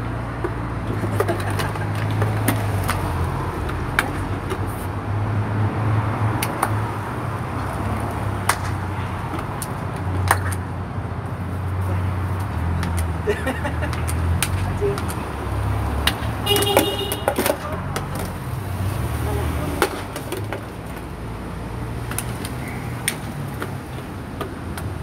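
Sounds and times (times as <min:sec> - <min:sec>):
low street hum: 0:00.0 - 0:25.0
plastic bottle clacking on pavement: 0:00.3 - 0:04.7, 0:07.6 - 0:10.7, 0:12.4 - 0:18.8, 0:19.7 - 0:21.3, 0:22.0 - 0:25.0.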